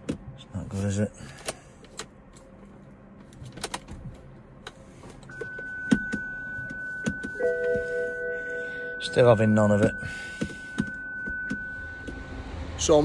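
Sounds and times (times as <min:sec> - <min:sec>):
steady high-pitched tone: 0:05.3 - 0:13.0.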